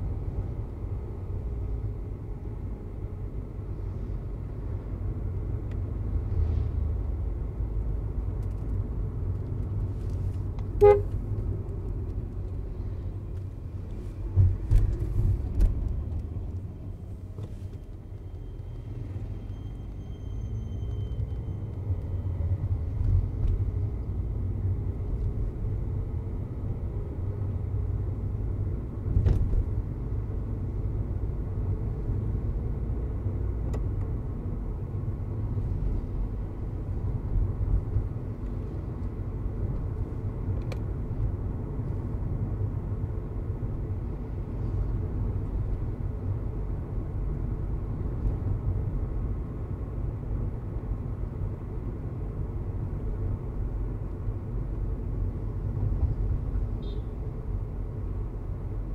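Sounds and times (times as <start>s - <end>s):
car engine and tyres rumbling: 0.0s - 58.9s
short horn beep: 10.8s - 11.2s, 56.8s - 57.2s.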